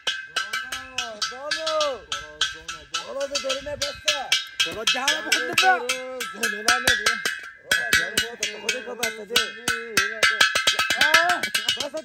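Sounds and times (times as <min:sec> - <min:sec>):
clanking bell-like percussion: 0:00.0 - 0:12.0.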